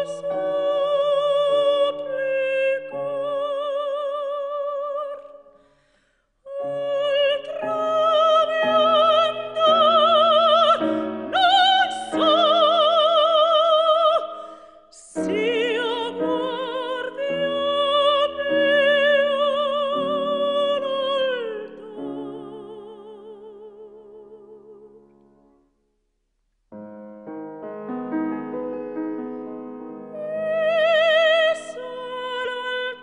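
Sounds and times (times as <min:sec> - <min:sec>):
piano accompaniment: 0:06.6 - 0:14.2, 0:26.7 - 0:33.0.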